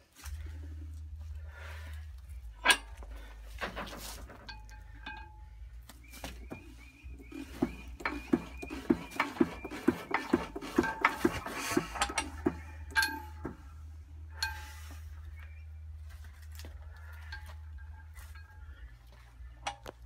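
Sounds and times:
engine flywheels spinning: 0:00.1 - 0:20.0
metallic clanking: 0:02.3 - 0:15.0.

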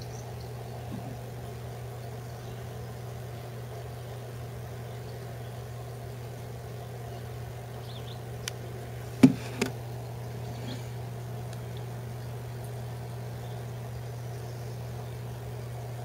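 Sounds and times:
steady low hum: 0:00.0 - 0:16.0
knocks: 0:09.2 - 0:09.7.

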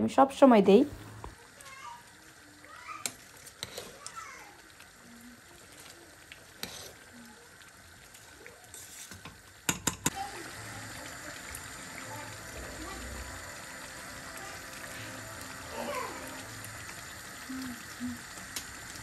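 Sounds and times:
spoon stirring rice in steel pot: 0:03.0 - 0:04.2, 0:05.6 - 0:07.1, 0:08.1 - 0:10.1.

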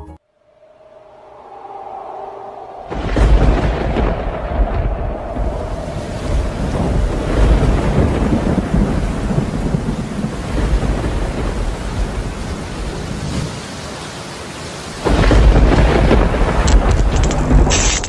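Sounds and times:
rolling thunder: 0:01.8 - 0:13.5, 0:15.0 - 0:18.0
loud thunderclap: 0:02.8 - 0:13.5, 0:15.0 - 0:18.0
steady rain: 0:02.9 - 0:18.0.

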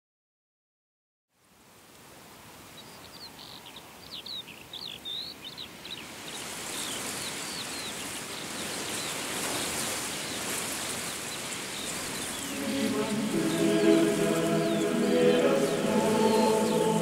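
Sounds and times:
small birds chirping: 0:02.7 - 0:17.0
steady hiss: 0:10.8 - 0:17.0.

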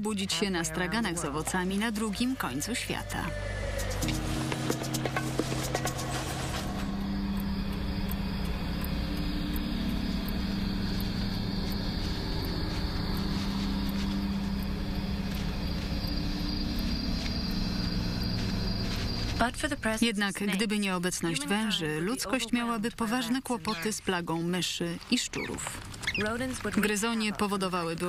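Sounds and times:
low hum: 0:00.3 - 0:23.9
faint ticks: 0:06.8 - 0:19.4.

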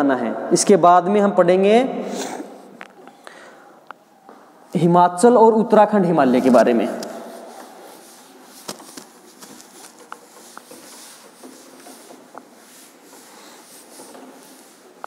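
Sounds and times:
duster rubbing on chalkboard: 0:06.2 - 0:15.0.

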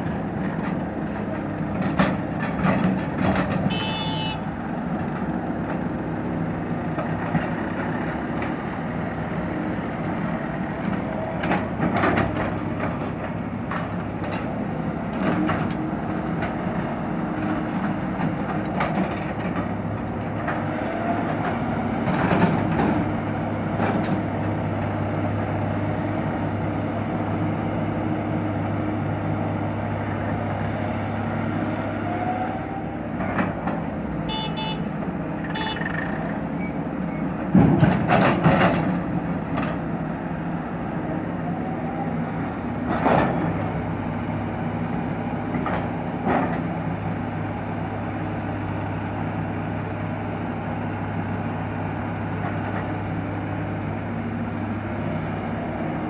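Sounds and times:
excavator diesel engine running: 0:00.0 - 0:56.0
horn toots: 0:03.7 - 0:04.5, 0:34.3 - 0:36.0.

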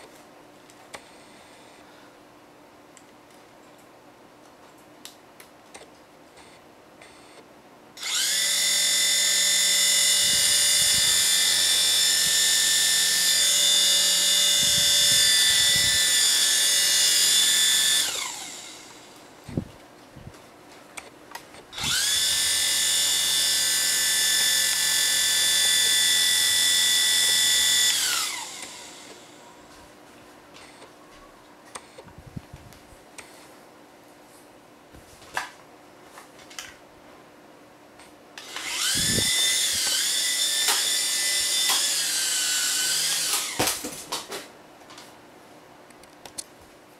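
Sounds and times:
toy helicopter rotors whining: 0:08.0 - 0:19.2, 0:21.8 - 0:29.4, 0:38.4 - 0:43.6.

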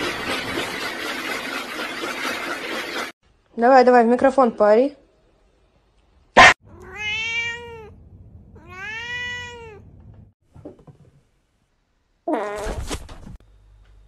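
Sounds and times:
cat meowing: 0:06.6 - 0:08.0, 0:08.6 - 0:09.9.

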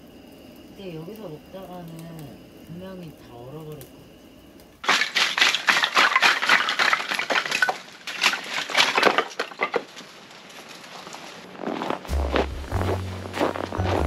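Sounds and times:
logs clattering onto gravel: 0:04.8 - 0:12.6.

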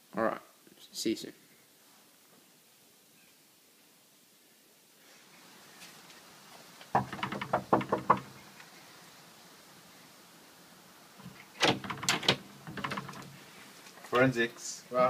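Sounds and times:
knocking on wooden door: 0:06.9 - 0:08.4, 0:11.6 - 0:13.3.

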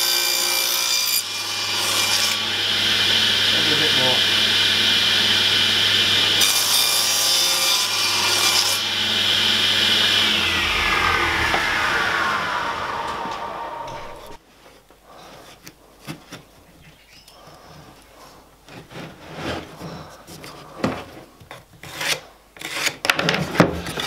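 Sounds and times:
table saw blade spinning down: 0:08.0 - 0:14.4.

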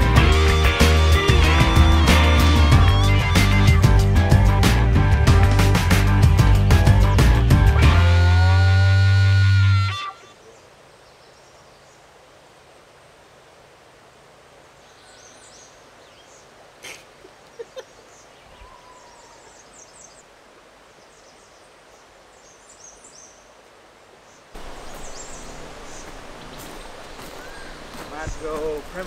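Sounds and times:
small birds chirping: 0:14.8 - 0:20.3, 0:21.0 - 0:23.6, 0:24.2 - 0:29.0.

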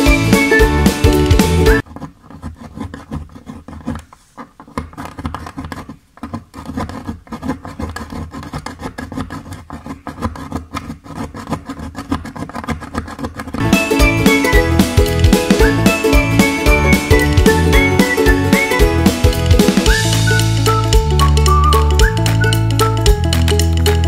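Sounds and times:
food grated on metal grater: 0:05.6 - 0:13.6.

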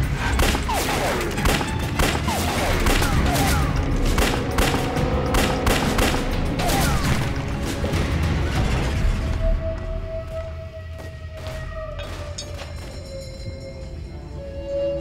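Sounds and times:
dramatic background music: 0:00.0 - 0:15.0
pistol gunfire: 0:00.3 - 0:06.4.

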